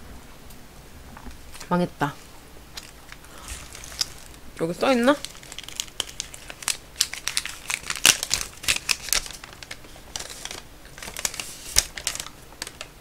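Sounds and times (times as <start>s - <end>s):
paper crinkling: 2.7s - 13.0s.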